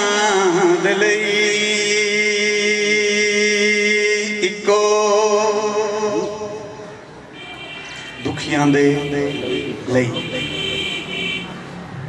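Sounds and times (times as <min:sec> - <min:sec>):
man singing long held notes: 0:00.0 - 0:06.8.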